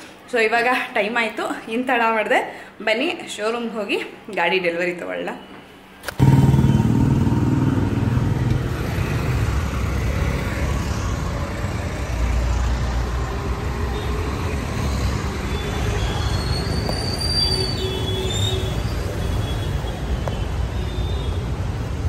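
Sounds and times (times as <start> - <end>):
passing vehicles rumbling: 6.2 - 20.8
high thin squeal: 14.7 - 19.8.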